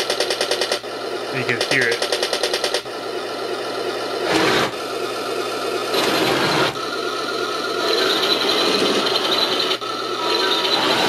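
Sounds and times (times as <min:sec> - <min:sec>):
electric motors whirring: 0:00.0 - 0:11.0
simulated tank engine from speaker: 0:01.3 - 0:02.0.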